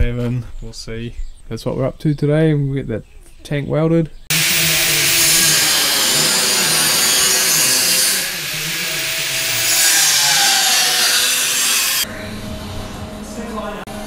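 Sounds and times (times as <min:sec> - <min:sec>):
power tool whining hiss: 0:04.3 - 0:12.1.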